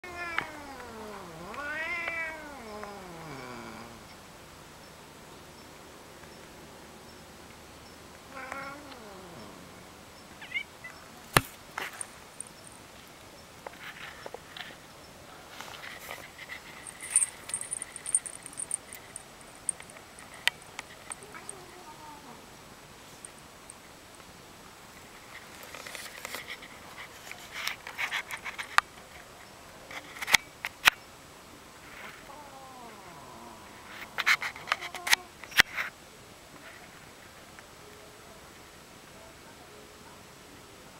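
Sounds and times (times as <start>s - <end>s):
cat meowing: 0.0s - 3.7s, 8.3s - 9.6s, 10.4s - 10.7s.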